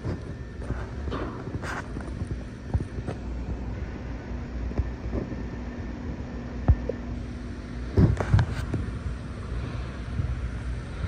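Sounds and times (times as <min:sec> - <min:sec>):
faint hum: 0:00.0 - 0:11.0
low steady rumble: 0:00.0 - 0:11.0.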